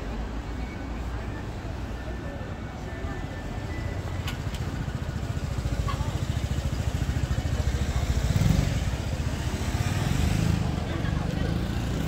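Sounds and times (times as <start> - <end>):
street background noise: 0.0 - 12.0
vehicle engine rumble passing: 4.0 - 12.0.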